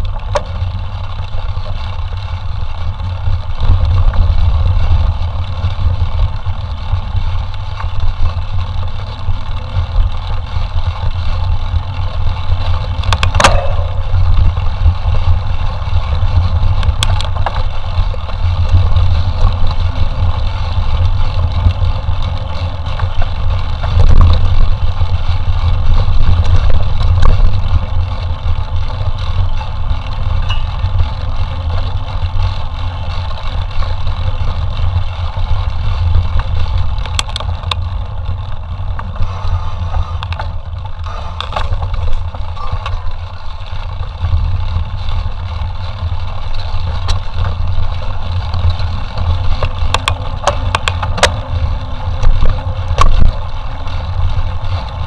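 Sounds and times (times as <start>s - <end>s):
bike rattling: 0.0s - 55.0s
wind and ride noise rumble: 0.0s - 55.0s
sharp knocks from rough ground: 13.1s - 14.2s.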